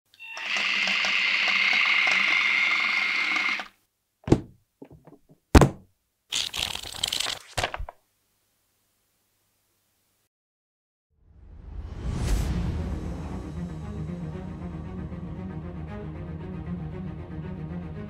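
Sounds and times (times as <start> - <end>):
electric motor whining: 0.3 - 3.7
dull thunk: 4.2 - 5.8.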